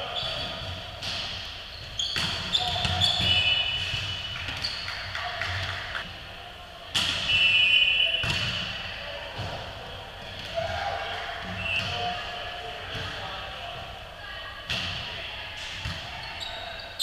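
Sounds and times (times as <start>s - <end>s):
referee's whistle: 2.0s - 4.8s, 7.2s - 8.3s, 11.6s - 12.0s.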